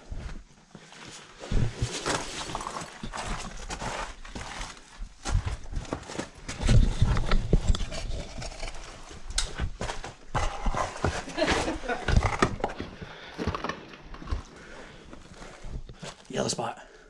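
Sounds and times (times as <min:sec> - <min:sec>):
footsteps on rock: 0:01.2 - 0:07.7
camera bumping and rubbing: 0:06.5 - 0:11.3.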